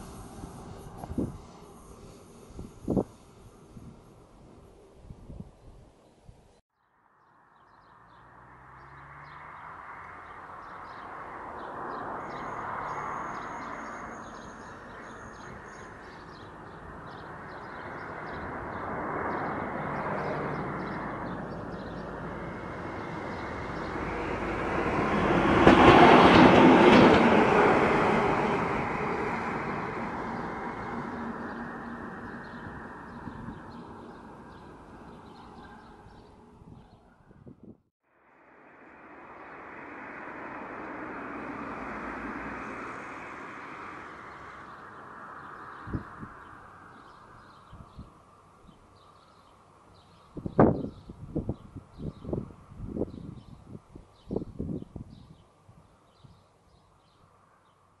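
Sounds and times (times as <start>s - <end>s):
diesel locomotive passing: 0.0s - 5.1s, 7.9s - 36.7s, 38.3s - 47.4s.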